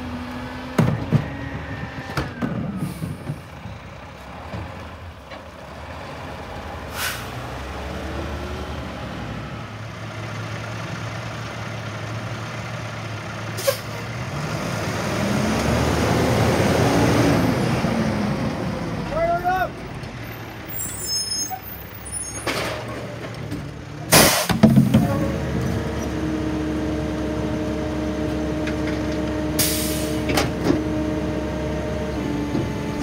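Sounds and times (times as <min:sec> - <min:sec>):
garbage truck diesel engine: 0:00.0 - 0:33.0
air brake hisses: 0:06.9 - 0:07.4, 0:29.6 - 0:30.2.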